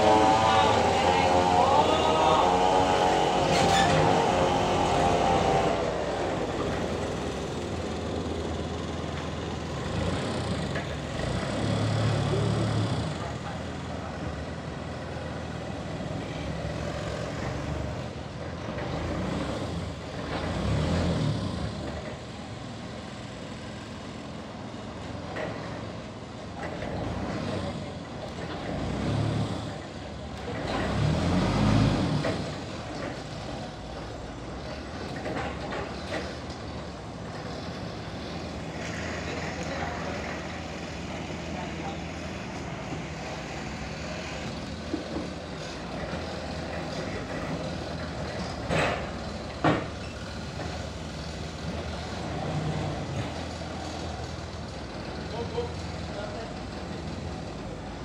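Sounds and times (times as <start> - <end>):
sawmill sawing a log: 0.0 - 22.0, 30.5 - 36.5.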